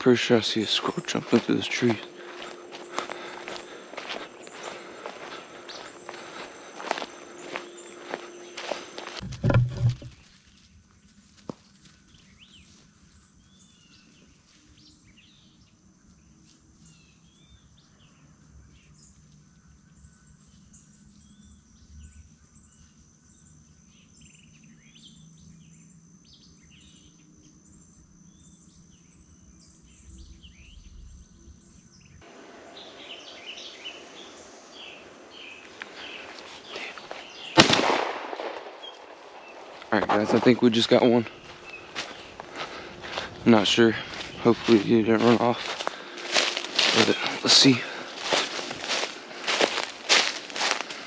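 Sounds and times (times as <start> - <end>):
high-pitched insect drone: 0.0 - 9.8, 38.8 - 51.0
birds chirping: 0.0 - 51.0.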